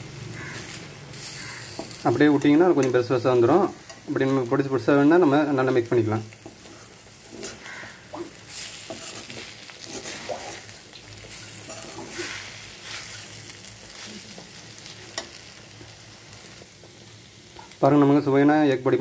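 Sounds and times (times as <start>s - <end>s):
food sizzling in a pan: 0.0s - 19.0s
metal spoon scraping a pan: 6.4s - 13.3s.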